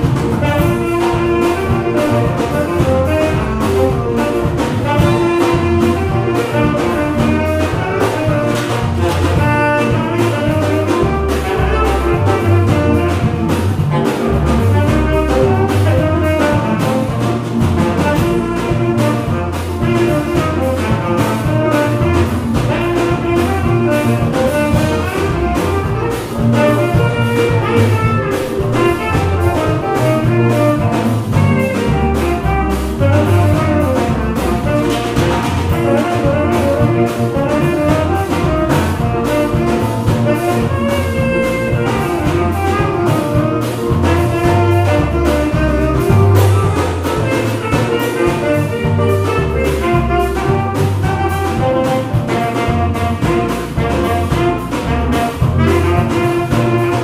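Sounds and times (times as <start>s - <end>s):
drum kit steady beat: 0.0s - 57.0s
guitars: 0.0s - 57.0s
saxophone playing melody: 0.0s - 57.0s.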